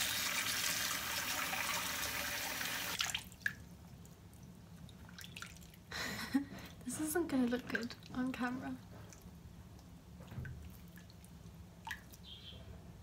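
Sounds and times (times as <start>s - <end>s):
water running from a tap: 0.0s - 3.2s
water splashes and drips: 0.0s - 5.9s, 7.3s - 12.3s.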